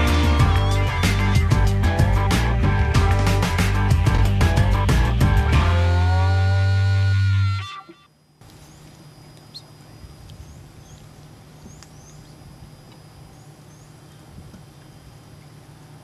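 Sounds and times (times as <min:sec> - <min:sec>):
steady low hum: 0:00.0 - 0:16.0
small bird chirping: 0:08.4 - 0:15.6
faint clicks: 0:11.7 - 0:12.0.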